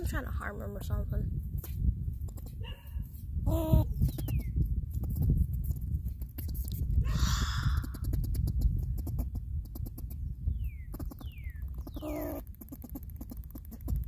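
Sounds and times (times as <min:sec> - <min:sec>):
squirrel chattering teeth: 0:02.2 - 0:02.6, 0:03.5 - 0:14.0.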